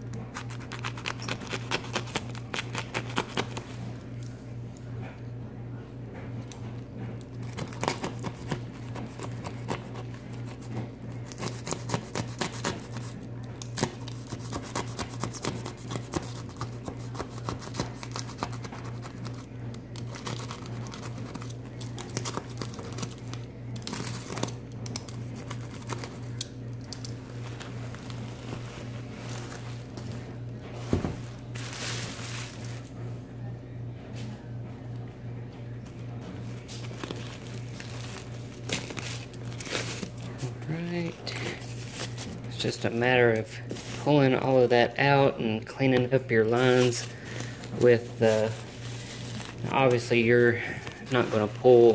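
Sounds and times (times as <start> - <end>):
steady low hum: 0.0 - 51.9
plastic and paper crinkling: 7.4 - 24.6, 27.0 - 33.0, 36.4 - 44.6, 46.4 - 51.9.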